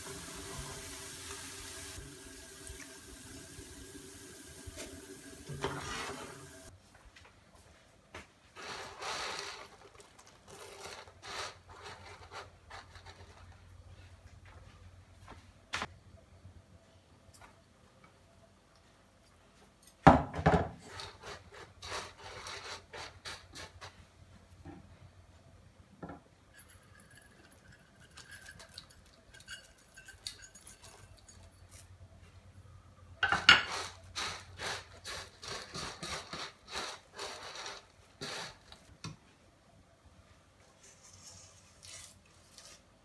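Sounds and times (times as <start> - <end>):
fried snack rustling: 8.8 - 13.6
utensils clattering in steel bowl: 26.5 - 31.8.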